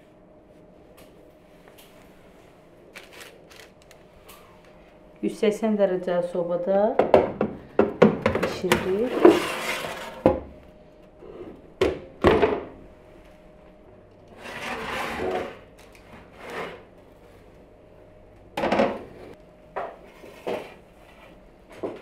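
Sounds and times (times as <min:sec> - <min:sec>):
rubbing scrape: 0:09.1 - 0:10.2, 0:14.4 - 0:15.6.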